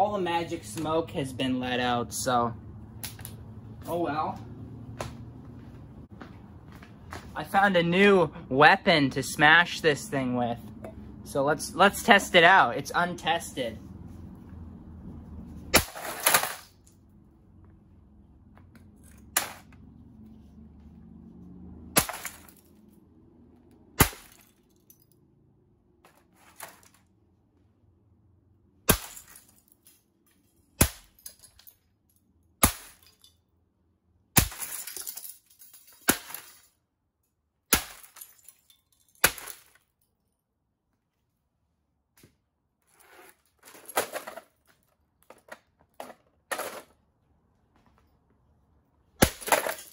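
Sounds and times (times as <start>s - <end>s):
metal pipe smashing casing: 22.0s - 22.7s, 28.9s - 29.6s, 34.4s - 36.7s, 49.2s - 49.9s.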